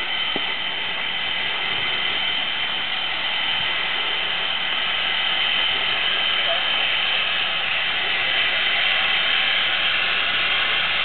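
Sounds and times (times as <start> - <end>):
steam locomotive hissing steam: 0.0 - 11.0.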